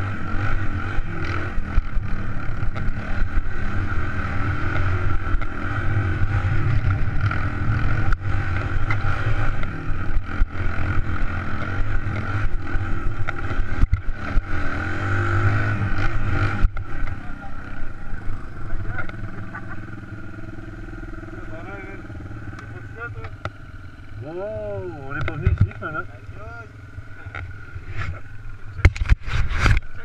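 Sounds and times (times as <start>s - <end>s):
motorcycle engine revving: 0.0s - 30.0s
knocks from rough ground: 28.8s - 29.9s.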